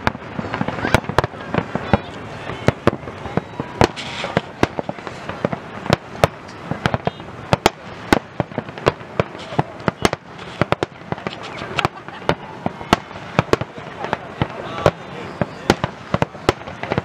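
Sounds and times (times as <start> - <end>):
firework shells bursting: 0.0 - 17.0
steady background hiss: 0.0 - 17.0.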